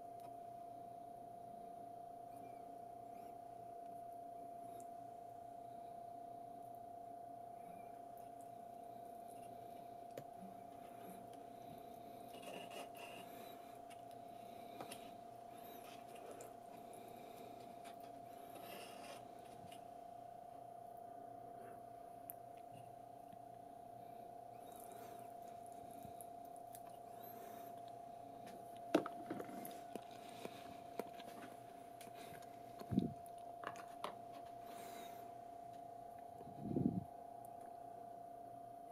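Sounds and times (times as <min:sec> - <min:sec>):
steady thin hum: 0:00.0 - 0:38.9.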